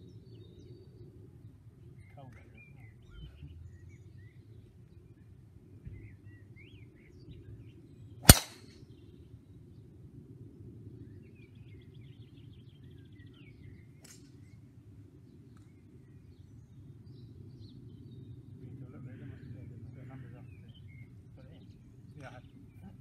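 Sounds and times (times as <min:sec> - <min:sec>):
golf driver striking ball: 0:08.3 - 0:08.6.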